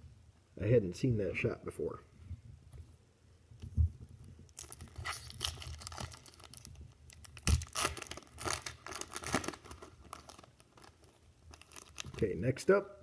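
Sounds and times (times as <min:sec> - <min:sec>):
foil wrapper crinkling: 0:04.5 - 0:12.4.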